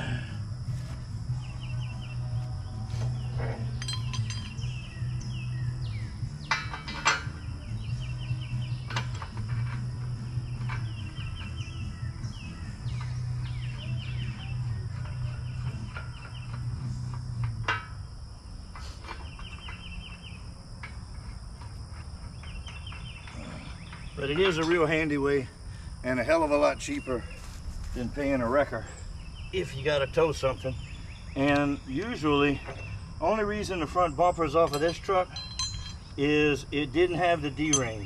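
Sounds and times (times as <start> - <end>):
metal clanks and knocks: 3.0 - 4.9, 6.3 - 11.7, 12.9 - 18.0, 22.4 - 25.0, 34.4 - 36.2, 37.0 - 38.0.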